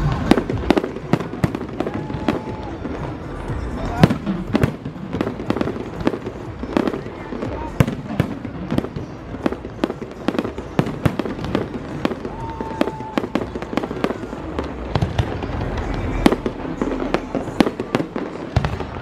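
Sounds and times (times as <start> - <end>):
fireworks bursting: 0.0 - 19.0.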